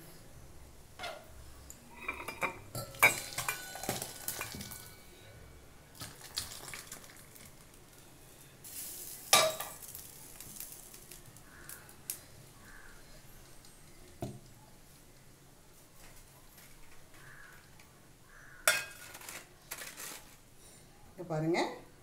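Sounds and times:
metal pots clinking: 1.0 - 5.2, 9.1 - 10.7, 18.6 - 19.9
liquid pouring: 5.9 - 7.9.

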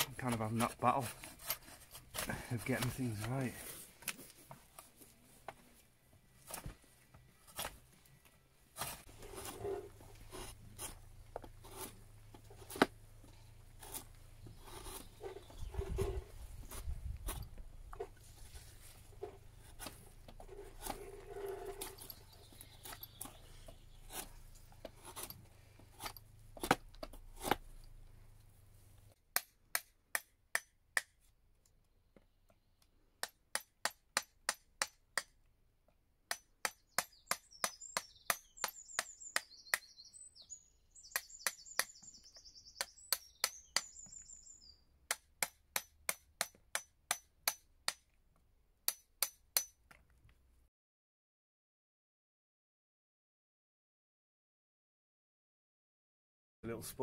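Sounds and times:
drawknife scraping wood: 0.3 - 3.8, 7.4 - 7.8, 8.7 - 13.0, 13.7 - 27.9.

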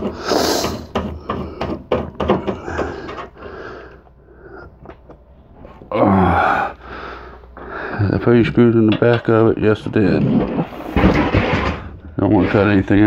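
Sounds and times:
clicks and knocks of metal parts: 0.0 - 3.4, 8.8 - 9.5.

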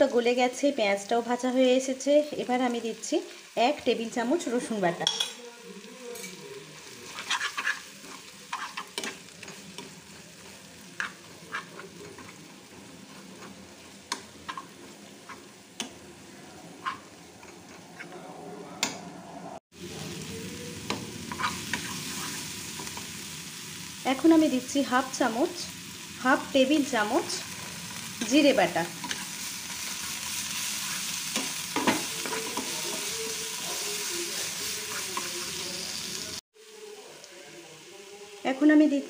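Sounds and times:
food sizzling in oil: 0.0 - 17.9, 19.7 - 39.0
metal spatula scraping a pan: 6.2 - 16.0, 16.6 - 18.2, 21.3 - 23.1, 27.5 - 35.7.

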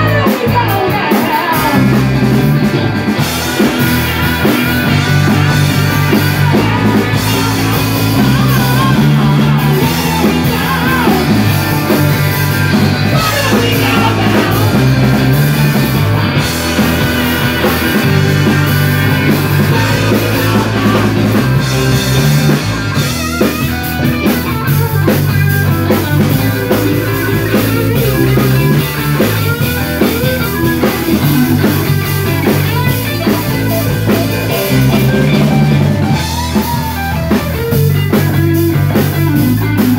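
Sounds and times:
man singing lead: 0.0 - 2.1, 5.3 - 30.2
live rock band playing: 0.0 - 39.9.

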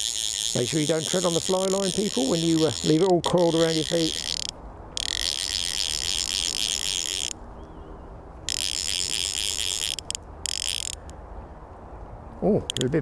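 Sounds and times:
fishing reel ratchet clicking: 0.0 - 7.4, 8.5 - 11.1, 12.7 - 12.9.

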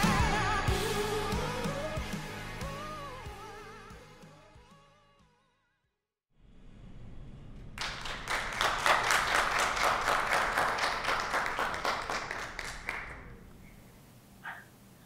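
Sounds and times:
small group applauding: 7.8 - 13.5.

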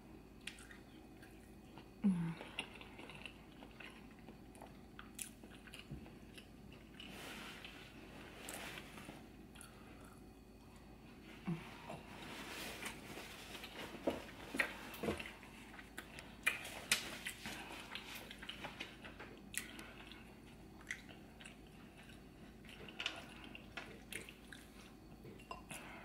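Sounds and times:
wet chewing and lip smacks: 0.4 - 1.6, 19.4 - 25.1.

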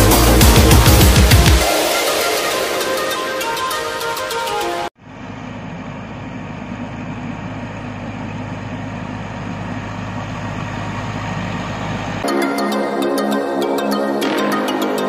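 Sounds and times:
tractor engine hum: 5.0 - 12.2.

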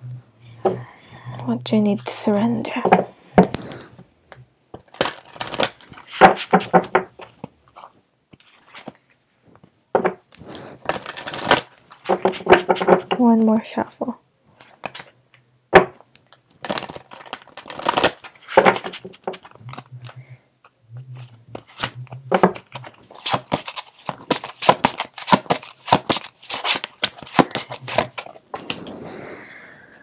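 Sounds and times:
cards being shuffled: 4.8 - 13.5, 14.6 - 15.2, 16.0 - 29.0.

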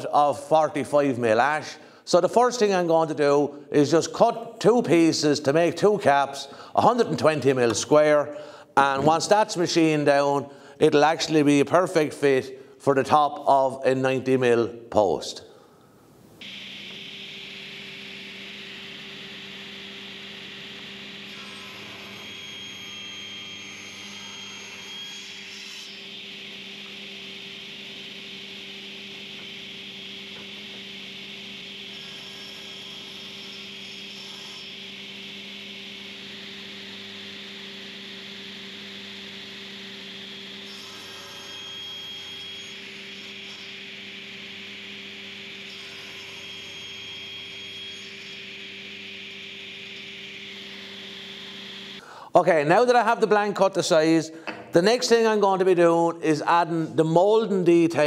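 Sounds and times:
table saw whining: 0.0 - 11.8, 16.4 - 53.4.

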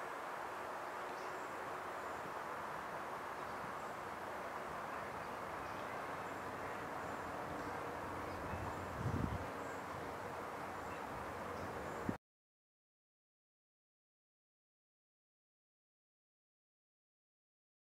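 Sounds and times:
outdoor background noise: 0.0 - 12.2.

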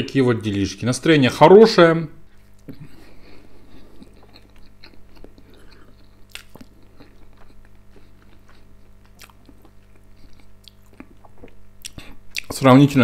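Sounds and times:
man chewing food: 2.3 - 12.6
wet mouth clicks: 4.0 - 12.6.

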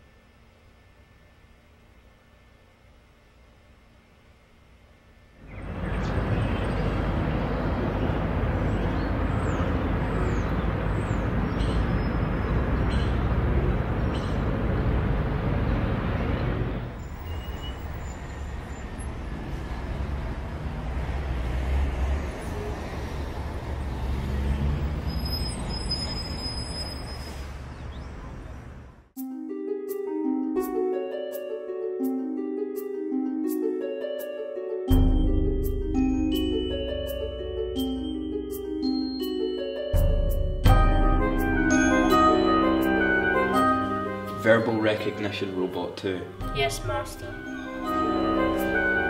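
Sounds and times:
street traffic noise: 4.8 - 29.2, 34.9 - 49.0.

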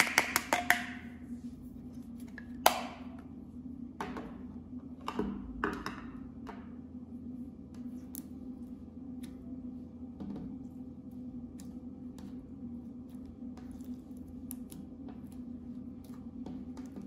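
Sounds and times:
soft crackles on slime: 10.6 - 17.0.

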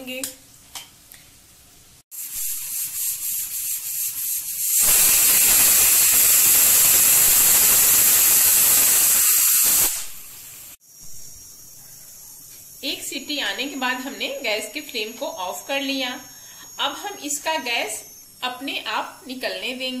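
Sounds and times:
pressure cooker whistle: 2.2 - 10.8.

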